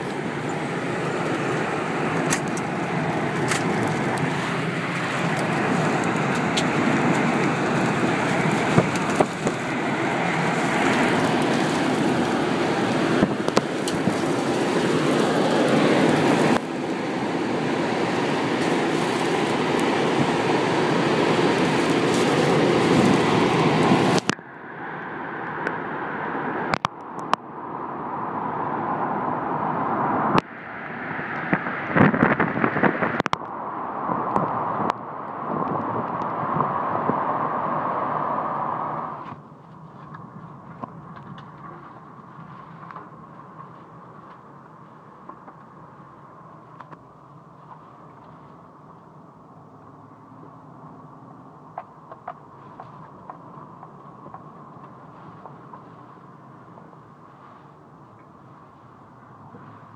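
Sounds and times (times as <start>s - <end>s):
wind buffeting microphone: 0.0s - 24.3s, 31.2s - 46.7s
tornado wind roaring: 0.0s - 59.9s
flying debris clicks and knocks: 1.1s - 24.3s, 39.3s - 44.5s.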